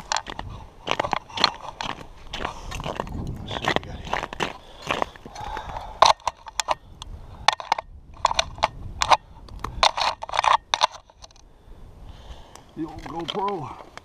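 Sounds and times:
ice chips crunching and scraping: 0:00.0 - 0:05.6.

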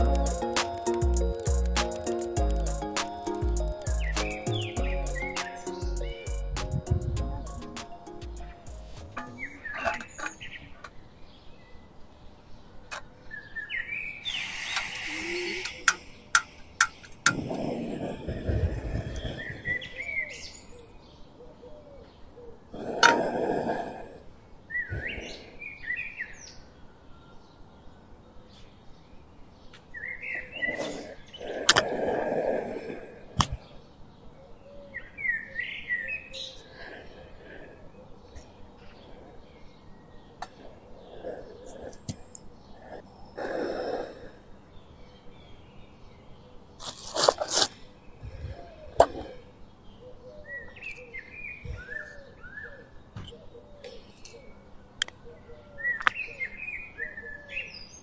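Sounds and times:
packet crinkling: 0:00.0 - 0:04.1
sharp clicks: 0:00.0 - 0:05.8, 0:14.4 - 0:17.5
birds chirping: 0:00.0 - 0:58.0.

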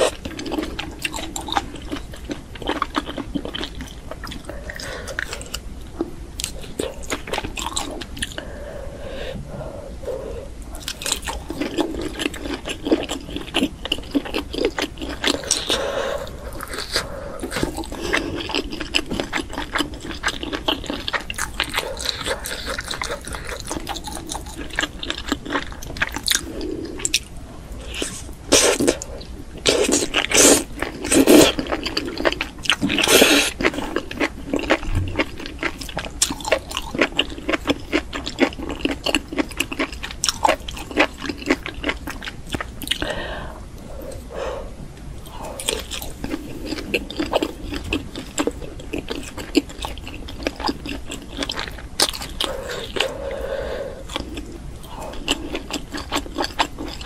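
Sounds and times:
wet crunchy chewing: 0:10.8 - 0:43.1, 0:45.2 - 0:53.4, 0:54.1 - 0:57.0.

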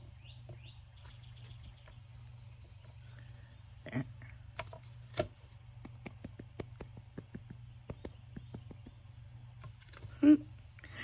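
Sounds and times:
low steady hum: 0:00.0 - 0:11.0
ink dabbing taps on paper: 0:05.7 - 0:09.0.

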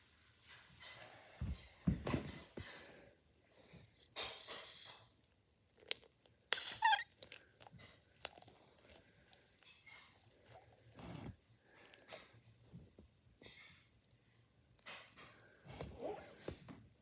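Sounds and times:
squishy toy squelching: 0:04.3 - 0:12.2
short squeak: 0:06.6 - 0:07.1.

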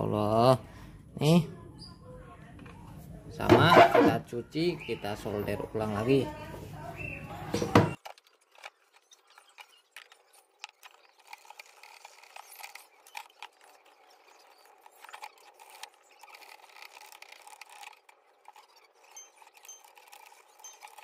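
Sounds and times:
toothbrush scrubbing circuit board: 0:08.4 - 0:21.0.

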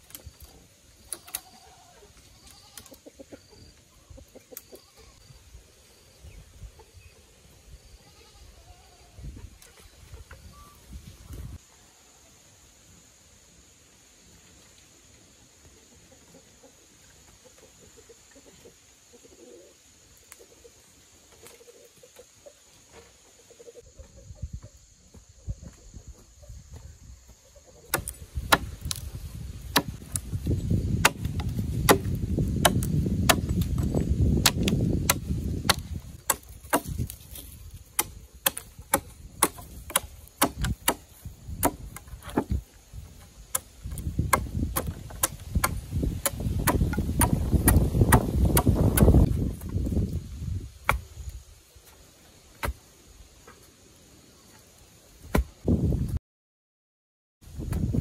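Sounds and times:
sharp chopping blows: 0:27.9 - 0:29.1, 0:29.7 - 0:30.3, 0:31.0 - 0:37.2, 0:38.0 - 0:42.6, 0:43.5 - 0:49.3.

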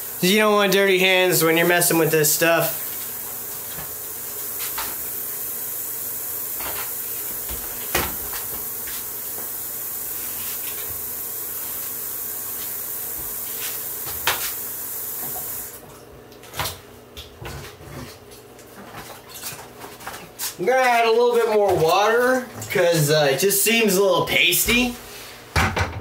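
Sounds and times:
sink tap running: 0:00.0 - 0:15.8.

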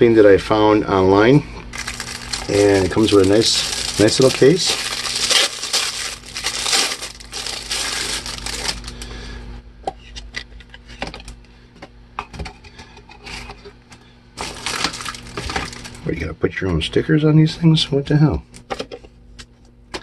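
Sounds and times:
plastic wrap crinkling: 0:01.7 - 0:09.2, 0:14.4 - 0:16.0.

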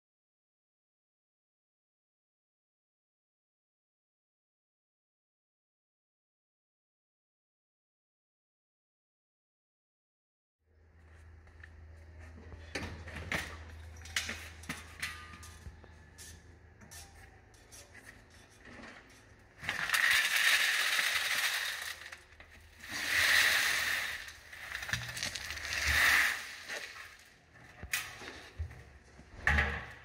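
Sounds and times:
gravel tipped onto hard floor: 0:22.8 - 0:27.3.

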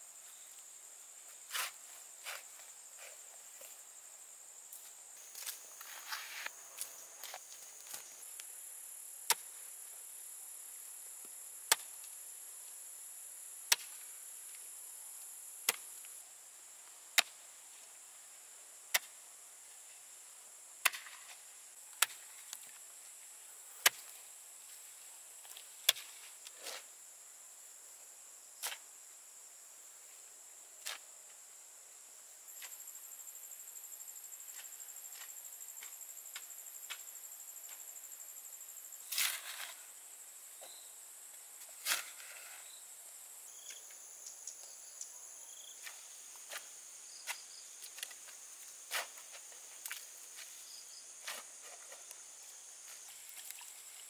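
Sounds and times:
metal hoe chopping dry soil: 0:39.1 - 0:39.8, 0:41.8 - 0:42.4.

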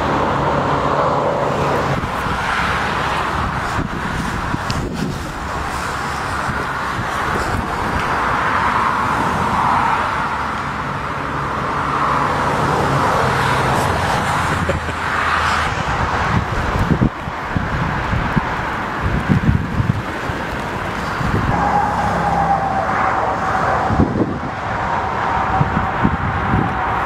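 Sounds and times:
jet engines roaring overhead: 0:00.0 - 0:27.0
wind gusts on microphone: 0:00.0 - 0:27.0.

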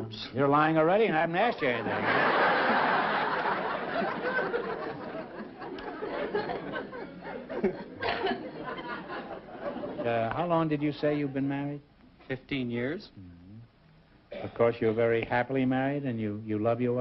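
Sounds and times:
studio audience laughing: 0:01.6 - 0:10.2.

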